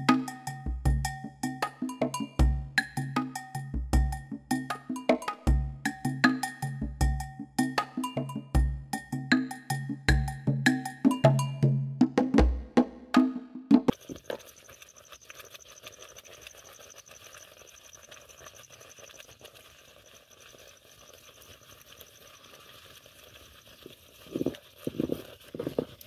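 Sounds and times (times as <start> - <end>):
wooden spoon scraping: 13.9 - 26.0.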